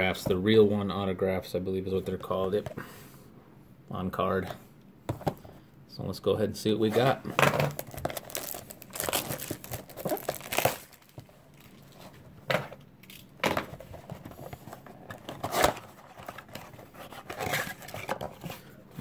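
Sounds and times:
plastic shrink wrap crinkling: 7.7s - 12.2s.

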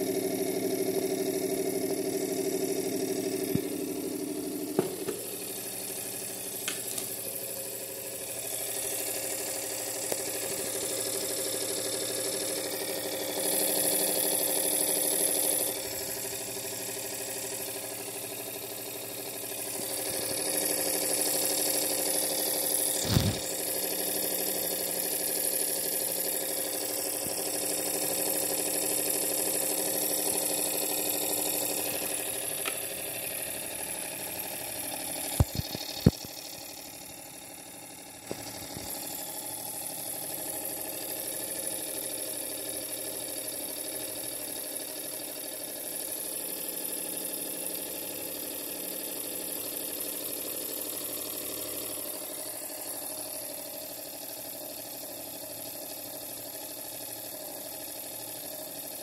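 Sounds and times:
small electric motor hum: 0.0s - 59.0s
knock: 4.8s - 5.2s.

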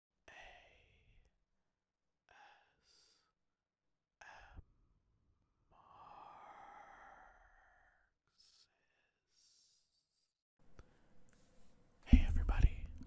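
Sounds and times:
faint breathy voice sounds: 5.7s - 10.4s.

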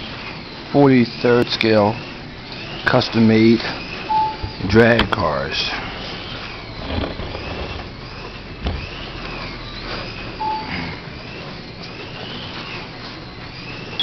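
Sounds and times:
slot car motors whining: 0.0s - 14.0s
steady background hum: 0.0s - 14.0s
brief short tone: 4.1s - 4.6s, 10.4s - 10.9s.

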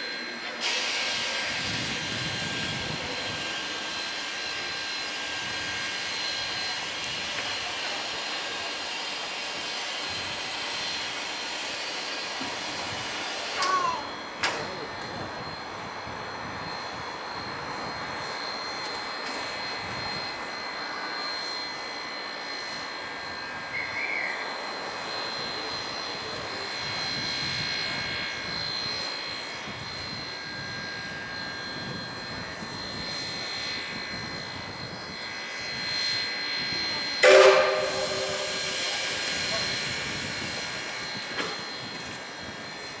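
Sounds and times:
steam hissing with high whine: 0.0s - 43.0s
steam locomotive whistle blast: 36.7s - 39.9s.

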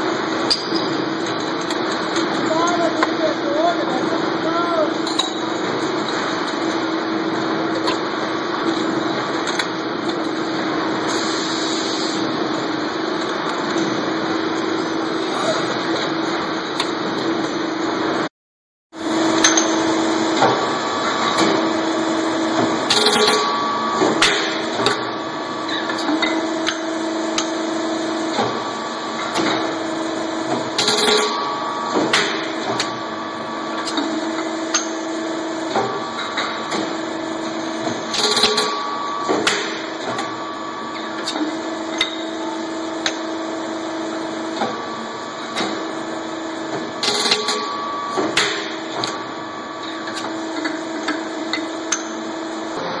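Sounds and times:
machine hum: 19.0s - 53.0s.

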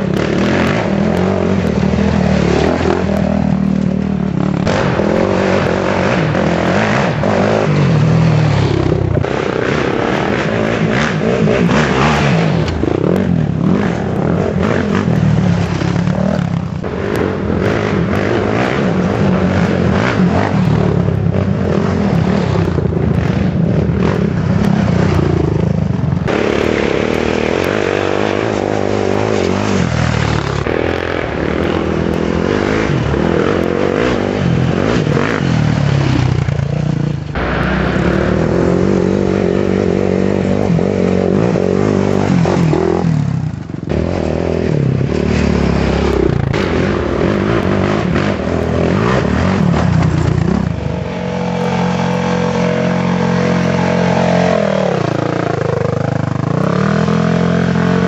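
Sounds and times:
quad engines revving past: 0.0s - 58.0s.

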